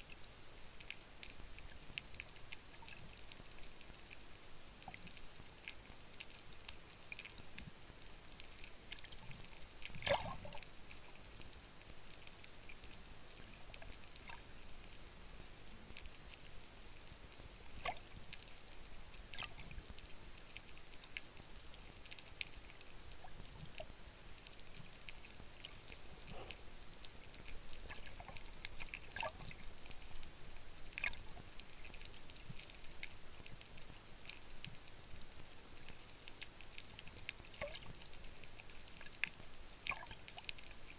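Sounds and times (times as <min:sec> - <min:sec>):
faint clicks and pops: 0:00.1 - 0:40.9.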